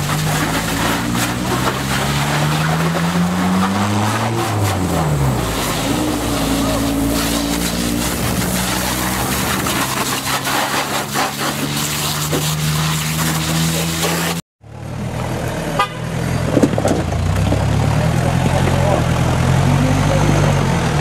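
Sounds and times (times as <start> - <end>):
pressure washer jet hissing: 4.3 - 14.4.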